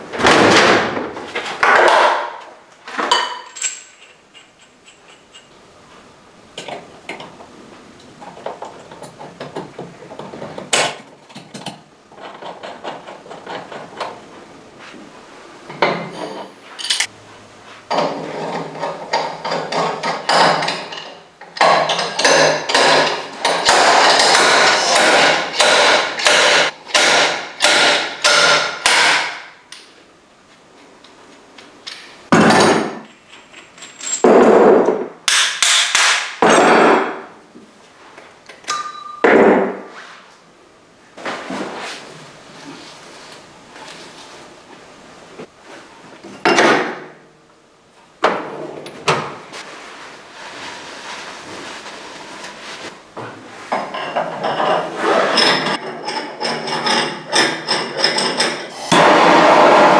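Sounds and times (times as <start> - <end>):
hammer striking metal: 22.3 - 29.5.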